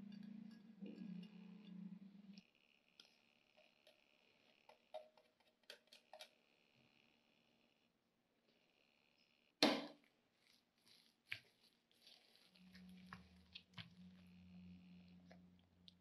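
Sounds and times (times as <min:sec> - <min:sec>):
spoon stirring wet filling: 0:03.0 - 0:06.4, 0:10.4 - 0:14.3.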